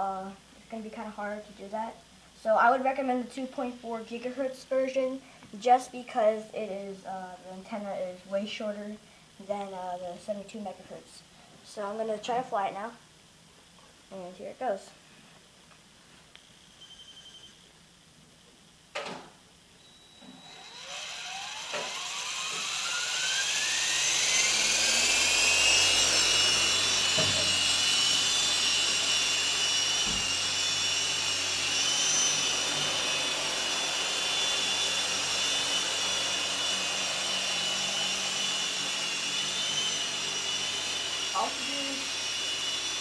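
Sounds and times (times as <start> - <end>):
rc helicopter rotors whining: 20.4 - 43.0.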